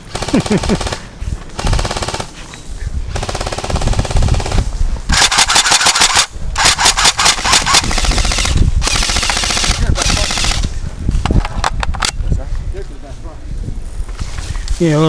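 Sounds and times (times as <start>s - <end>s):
electric gun full auto bursts: 0.1s - 1.0s, 1.6s - 2.3s, 3.1s - 10.7s.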